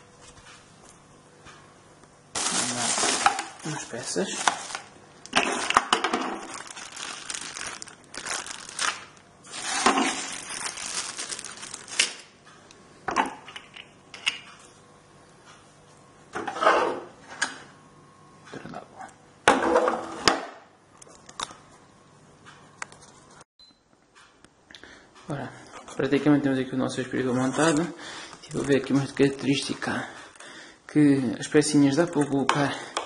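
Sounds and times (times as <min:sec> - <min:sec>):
plastic wrapping crinkling: 0:02.4 - 0:12.4, 0:27.4 - 0:30.5.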